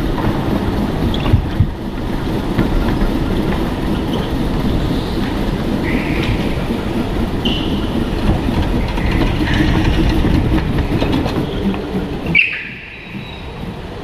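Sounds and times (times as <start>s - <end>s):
go-kart rattling rumble: 0.0s - 14.0s
tyres squealing: 2.9s - 14.0s.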